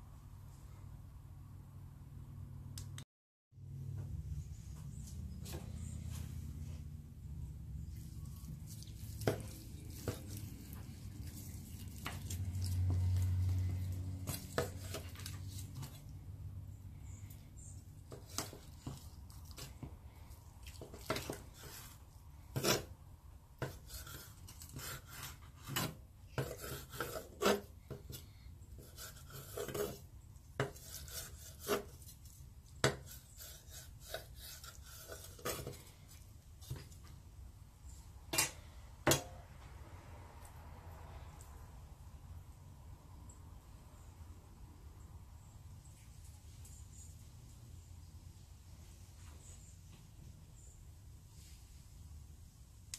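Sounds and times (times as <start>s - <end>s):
cutlery scraping a plate: 14.2s - 16.0s, 20.6s - 22.9s, 23.6s - 28.2s, 28.8s - 32.2s, 32.9s - 36.0s.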